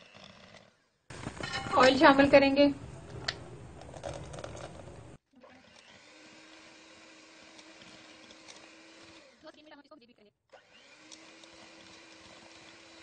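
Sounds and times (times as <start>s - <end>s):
hand mixer whisking batter: 0.0s - 0.6s, 5.4s - 9.8s, 10.5s - 13.0s
motor hum: 2.8s - 9.8s, 10.5s - 13.0s.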